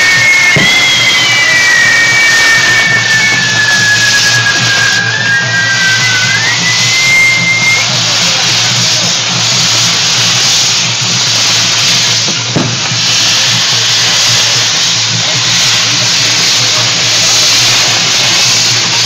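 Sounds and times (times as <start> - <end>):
fireworks hissing: 0.0 - 19.0.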